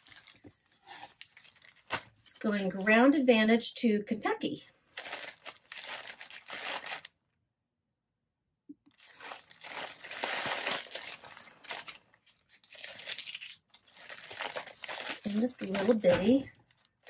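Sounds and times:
plastic mailer crinkling: 0.0 - 2.3, 4.9 - 7.1, 8.9 - 17.0
plastic tearing: 0.0 - 2.3, 4.9 - 7.1, 8.9 - 17.0.

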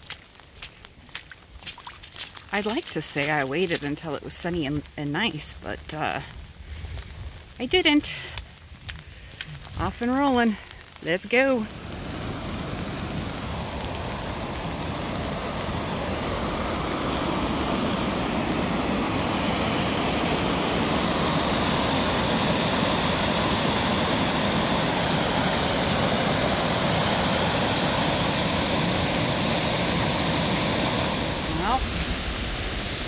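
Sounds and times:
waterfall rushing: 11.7 - 33.0.

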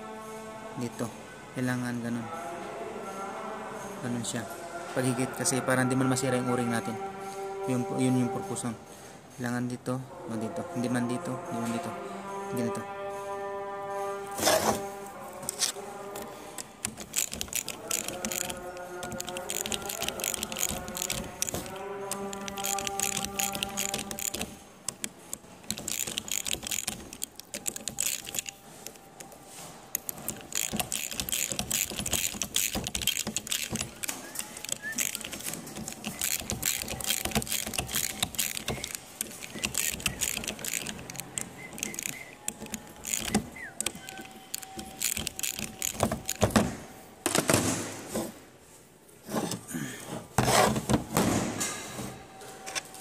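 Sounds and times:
ratchet wrench clicking: 15.5 - 46.6.

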